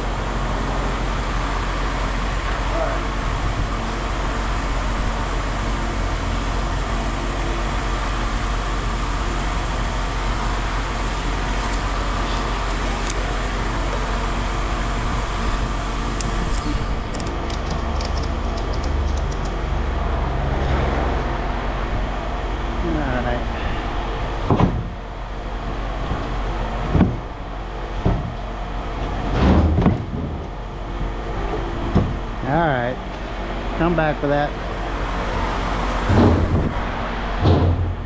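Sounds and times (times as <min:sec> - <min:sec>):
vehicle engine running: 0:00.0 - 0:26.8
light clicks or rattles: 0:17.1 - 0:19.6.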